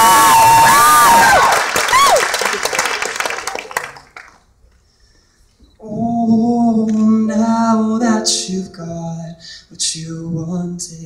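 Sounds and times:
crowd cheering and applause: 0.0 - 4.4
grand piano: 5.8 - 11.0
man singing: 5.8 - 11.0.

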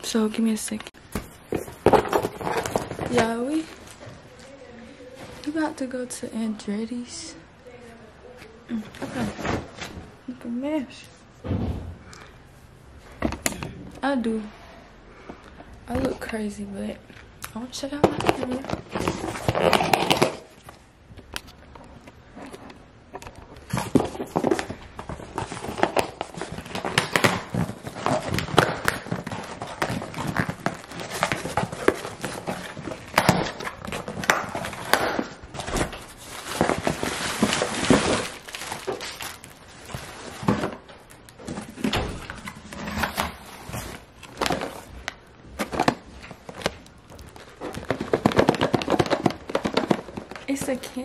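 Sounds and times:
cardboard tearing and rustling: 1.5 - 3.3, 18.2 - 20.7, 23.2 - 44.9, 45.6 - 50.8.

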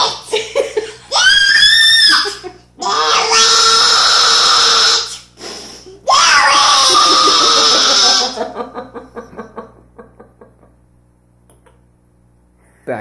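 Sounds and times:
child shrieking: 0.0 - 0.3, 1.1 - 5.3, 6.0 - 8.5
child laughing: 0.0 - 3.4, 5.9 - 10.4.

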